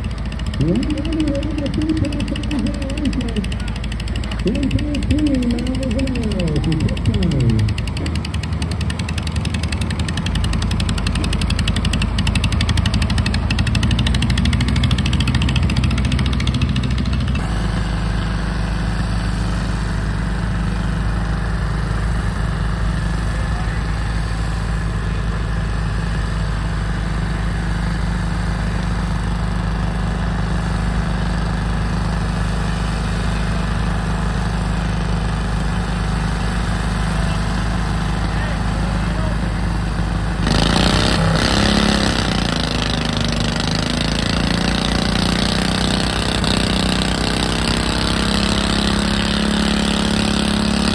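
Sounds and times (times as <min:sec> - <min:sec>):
garden tractor engine idling: 0:00.0 - 0:50.9
garden tractor engine running: 0:00.0 - 0:50.9.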